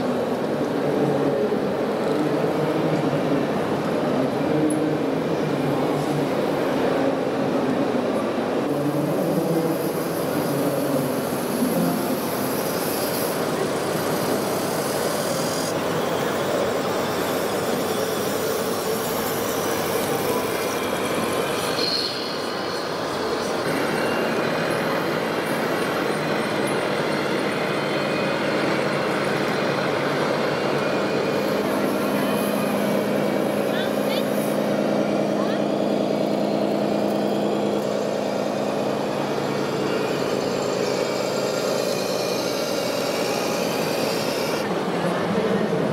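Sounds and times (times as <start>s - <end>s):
exhibition hall din: 0.0s - 45.9s
model trucks running: 0.0s - 45.9s.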